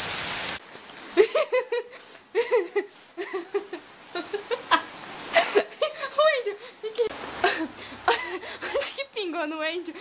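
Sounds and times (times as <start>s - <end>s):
heavy rain hiss: 0.0s - 10.0s
woman giggling: 1.2s - 6.2s, 7.4s - 9.0s.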